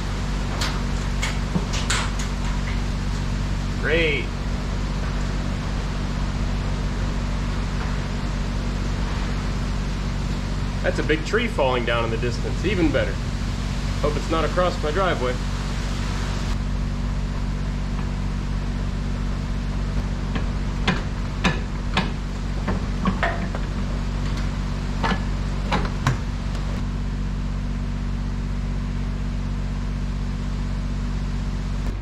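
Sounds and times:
low hum and hiss: 0:00.0 - 0:32.0
metal clanks and knocks: 0:20.0 - 0:26.3.

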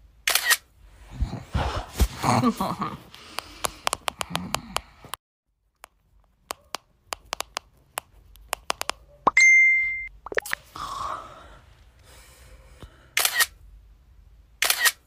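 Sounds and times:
camera shutter clicks: 0:00.3 - 0:00.7, 0:13.2 - 0:13.6, 0:14.6 - 0:15.0
high beep: 0:09.3 - 0:10.5.

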